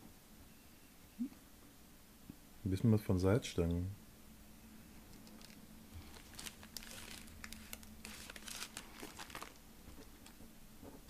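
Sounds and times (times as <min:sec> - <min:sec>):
plastic wrapper crinkling: 0:05.1 - 0:10.1.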